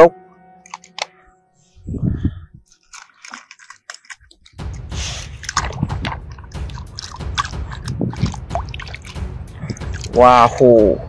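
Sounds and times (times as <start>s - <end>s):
hand splashing in water: 2.9s - 10.2s.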